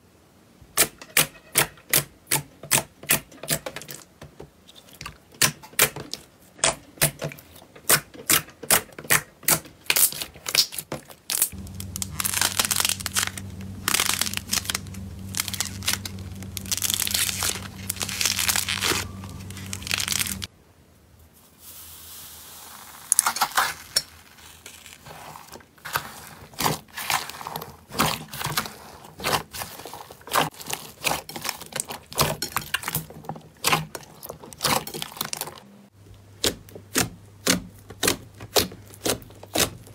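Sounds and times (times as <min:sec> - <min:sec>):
clay tearing crinkly: 0:09.5 - 0:20.5, 0:23.0 - 0:35.6, 0:36.4 - 0:39.9
low steady hum: 0:11.5 - 0:20.5.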